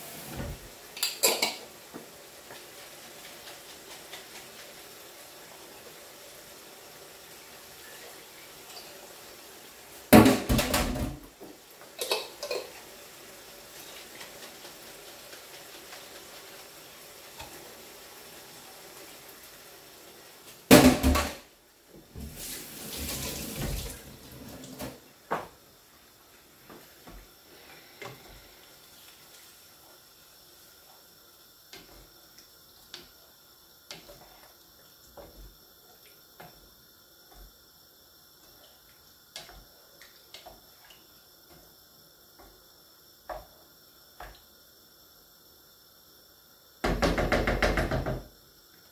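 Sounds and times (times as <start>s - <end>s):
wooden spatula stirring in a pan: 0.0s - 10.0s, 11.3s - 19.6s, 26.3s - 37.7s
water running: 0.0s - 44.8s
pots and pans clattering: 0.1s - 1.8s, 10.1s - 12.8s, 20.7s - 21.4s.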